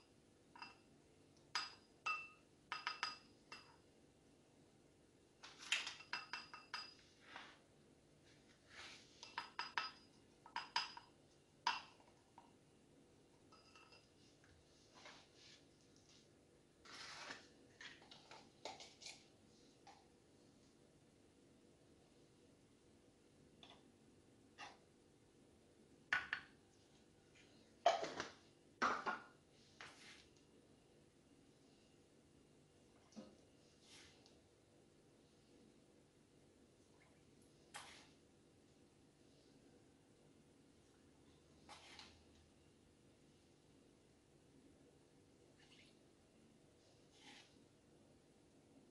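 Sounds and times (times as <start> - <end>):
glass cups clinking: 1.5 - 3.8, 5.7 - 7.0, 9.2 - 12.1, 13.5 - 14.2
wooden spoon knocking glass: 1.6 - 3.7.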